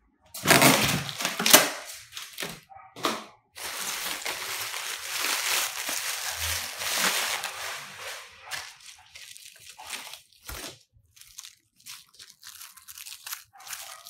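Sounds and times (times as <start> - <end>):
plastic bag crumpling: 0.4 - 2.6, 3.6 - 14.0.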